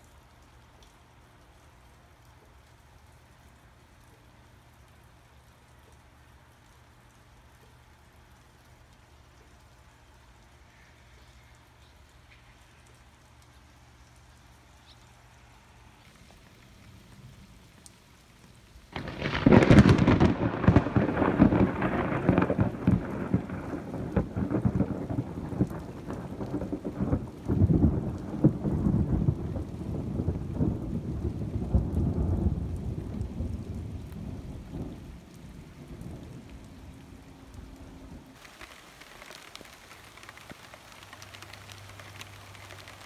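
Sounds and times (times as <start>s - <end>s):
thunder crack and rumble: 18.9s - 37.0s.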